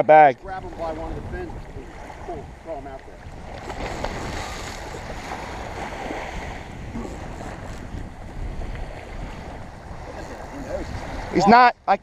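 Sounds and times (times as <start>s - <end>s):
small waves washing over sand: 0.4s - 11.7s
wind rumbling on microphone: 0.4s - 12.0s
fish splashing at surface: 3.4s - 6.4s.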